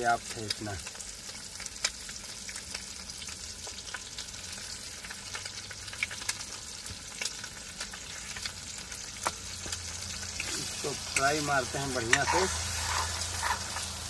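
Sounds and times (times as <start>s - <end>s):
eggs sizzling in a pan: 0.0s - 14.0s.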